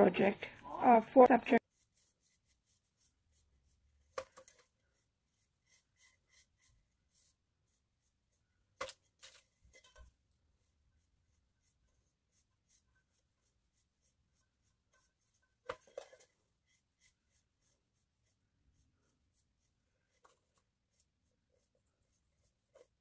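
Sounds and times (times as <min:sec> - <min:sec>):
paintbrush scratchy strokes: 0:00.8 - 0:23.0.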